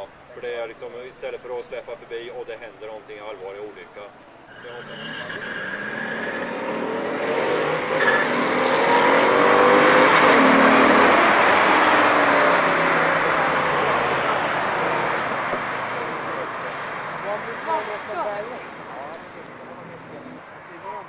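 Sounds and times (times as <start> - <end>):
cars racing past: 4.5 - 21.0.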